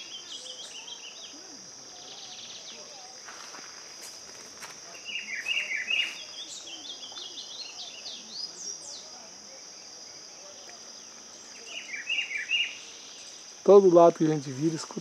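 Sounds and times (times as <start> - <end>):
high insect drone: 0.0 - 15.0
bird singing whistled notes: 5.0 - 9.1, 11.4 - 13.5.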